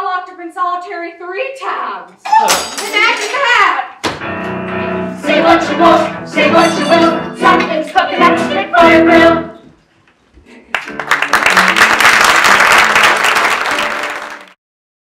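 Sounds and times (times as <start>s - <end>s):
person singing with accompaniment: 5.1s - 9.7s
audience applauding: 10.7s - 14.6s.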